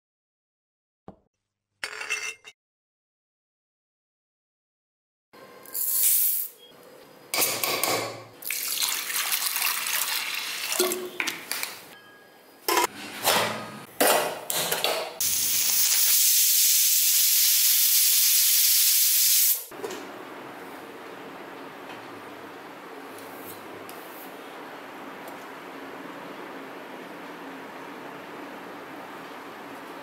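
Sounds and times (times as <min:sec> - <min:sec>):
loud steady hiss: 0:15.2 - 0:19.7.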